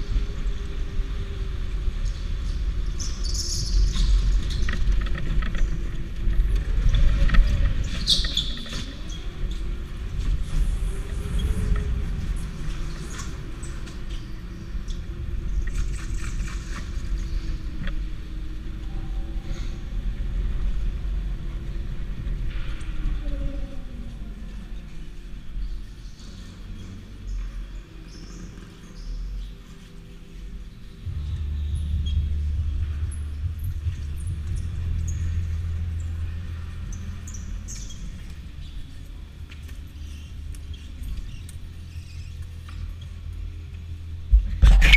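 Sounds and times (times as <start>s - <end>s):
short high-pitched squeaks: 44.6s - 44.9s.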